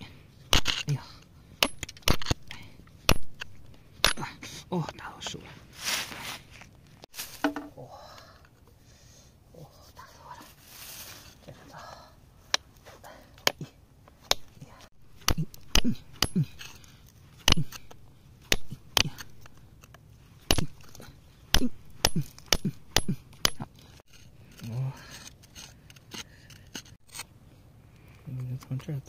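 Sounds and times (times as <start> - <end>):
hammer striking chisel on rock: 1.6 - 2.4, 3.1 - 4.3, 15.2 - 16.8, 17.4 - 19.5, 20.5 - 20.9, 21.5 - 23.7.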